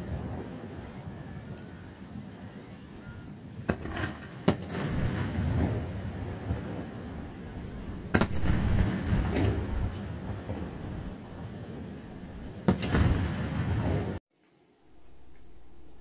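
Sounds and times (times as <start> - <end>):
firework shells bursting: 3.6 - 11.6, 12.6 - 14.2
low rumbling echo: 4.6 - 14.2.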